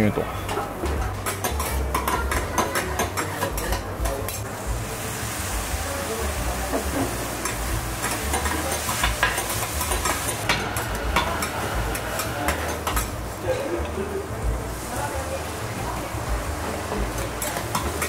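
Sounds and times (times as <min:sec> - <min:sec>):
food sizzling on griddle: 0:00.8 - 0:18.0.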